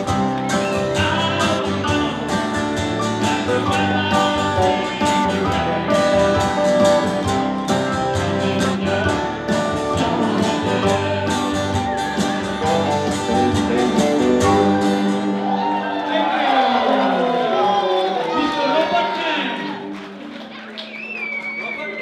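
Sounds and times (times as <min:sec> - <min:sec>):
strummed acoustic guitar: 0:00.0 - 0:15.7
ukulele: 0:00.0 - 0:15.7.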